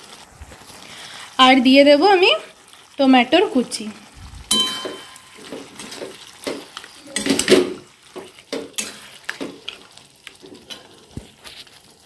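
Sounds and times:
light frying sizzle: 0:00.0 - 0:12.0
metal spatula scraping pan: 0:04.5 - 0:11.9.

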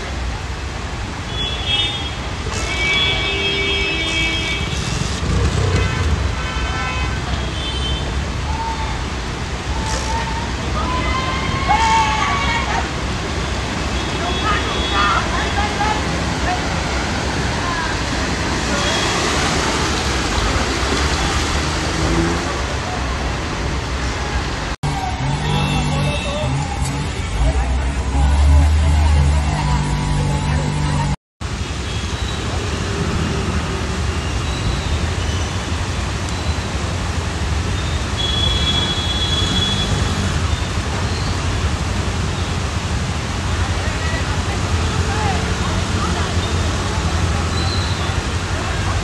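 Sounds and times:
heavy rain: 0:00.0 - 0:49.0
traffic rumble: 0:00.0 - 0:49.0
vehicles driving through water: 0:00.0 - 0:49.0
vehicle horns: 0:01.3 - 0:08.1, 0:24.8 - 0:31.2, 0:38.1 - 0:40.6.

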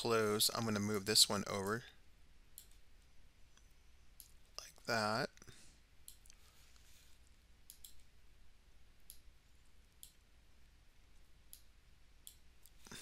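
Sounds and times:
low room hum: 0:00.0 - 0:13.0
computer mouse clicks: 0:07.6 - 0:08.1.

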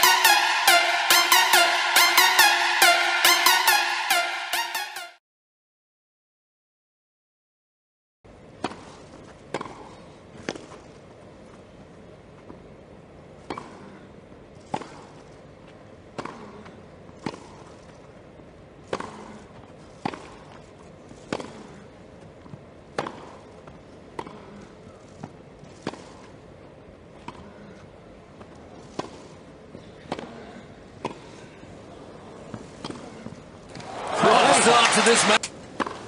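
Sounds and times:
low background noise: 0:08.3 - 0:36.0
racket hitting tennis ball: 0:08.6 - 0:10.8, 0:16.1 - 0:18.1, 0:18.8 - 0:21.9, 0:22.9 - 0:24.5, 0:25.2 - 0:26.4, 0:28.4 - 0:31.3, 0:32.5 - 0:34.9, 0:35.8 - 0:36.0.

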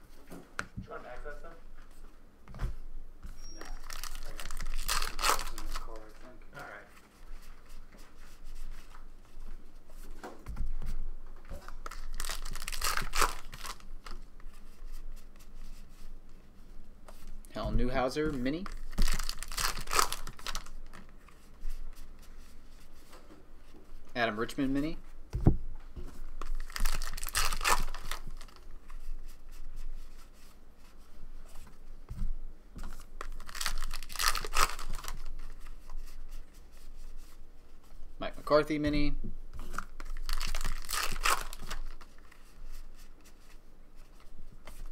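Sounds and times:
cards rustling and flicking: 0:03.7 - 0:06.2, 0:11.5 - 0:15.5, 0:18.3 - 0:21.5, 0:26.3 - 0:29.4, 0:32.8 - 0:36.2, 0:39.6 - 0:44.9
wrapper tearing and crinkling: 0:03.8 - 0:06.0, 0:11.7 - 0:14.2, 0:18.6 - 0:21.0, 0:26.4 - 0:28.7, 0:33.2 - 0:35.5, 0:39.7 - 0:42.3.

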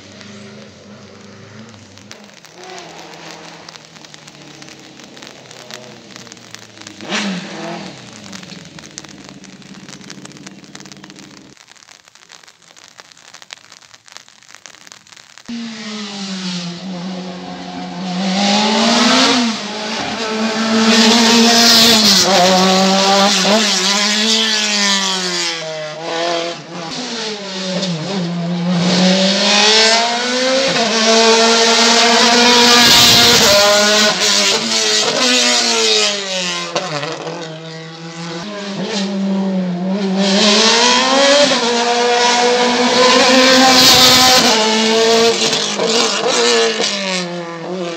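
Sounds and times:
rain hiss on wet ground: 0:00.0 - 0:47.9
race car engine revving: 0:15.5 - 0:47.9.

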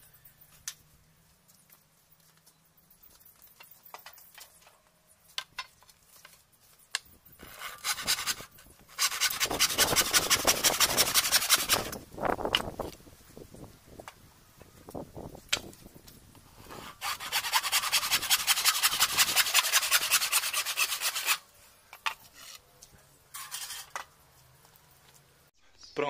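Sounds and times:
handsaw cutting wood: 0:07.4 - 0:12.0, 0:16.7 - 0:21.4.

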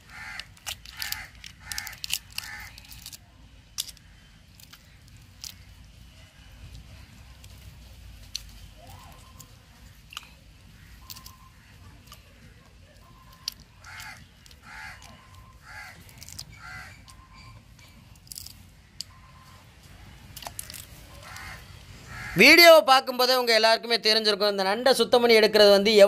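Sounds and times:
crow cawing: 0:00.0 - 0:02.8, 0:13.8 - 0:17.1, 0:21.1 - 0:22.5
crab shells cracking and tearing: 0:00.0 - 0:05.9, 0:08.2 - 0:17.2, 0:18.1 - 0:19.1, 0:20.3 - 0:21.8.

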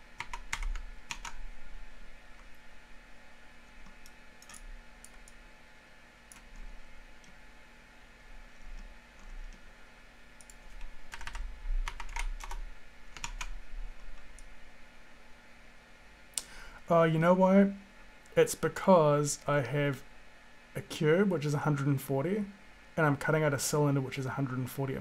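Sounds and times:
keyboard keystrokes and clicks: 0:00.2 - 0:01.4, 0:03.8 - 0:05.4, 0:10.4 - 0:13.5.

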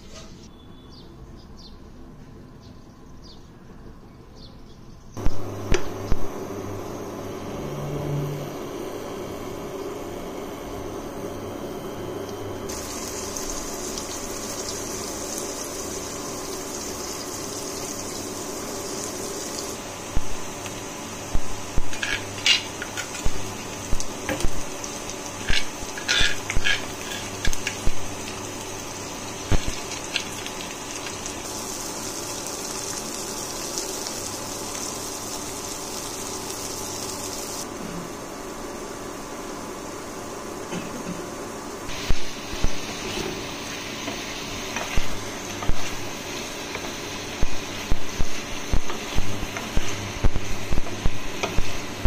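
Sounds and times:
onions sizzling in hot oil: 0:12.6 - 0:37.7, 0:41.9 - 0:52.0.

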